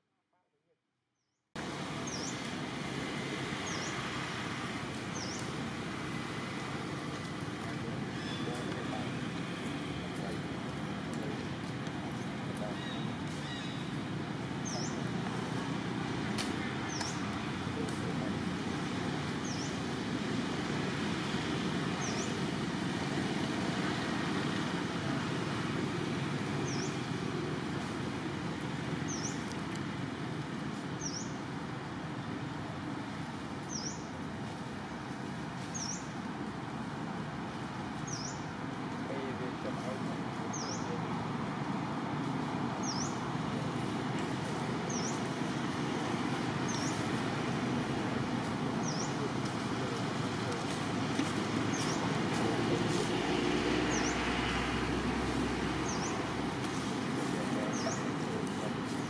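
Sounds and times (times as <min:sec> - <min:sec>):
low outdoor rumble: 0:01.6 - 0:59.0.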